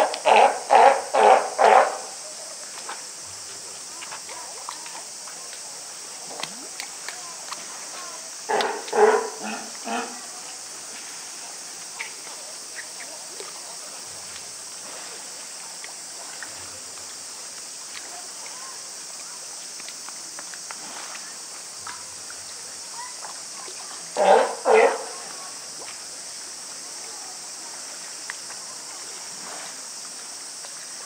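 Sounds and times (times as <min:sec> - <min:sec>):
steady high hiss: 0:00.0 - 0:31.0
faint clicks: 0:06.3 - 0:09.0, 0:19.2 - 0:22.6, 0:28.2 - 0:28.6.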